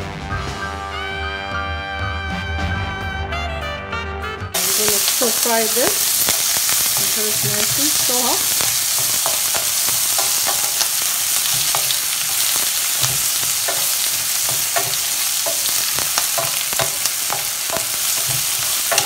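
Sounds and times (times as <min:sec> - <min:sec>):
vegetables sizzling in oil: 0:04.6 - 0:19.0
wooden spoon scraping a pan: 0:04.6 - 0:19.0.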